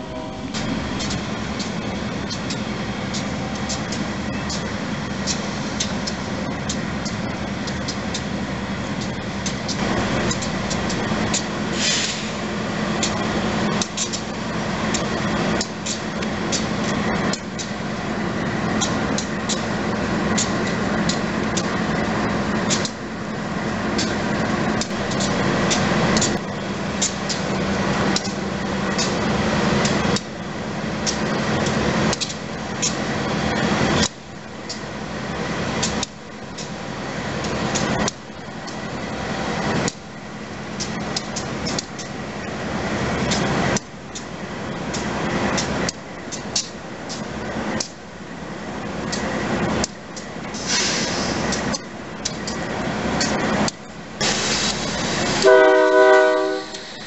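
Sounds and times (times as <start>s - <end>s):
locomotive engine rumble: 0.0s - 57.0s
sharp clicks and clanks: 0.5s - 12.2s, 12.9s - 17.8s, 18.7s - 21.8s, 22.6s - 23.0s, 23.9s - 30.3s, 31.0s - 33.1s, 35.7s - 36.8s, 40.7s - 42.6s, 43.2s - 48.0s, 49.0s - 55.5s.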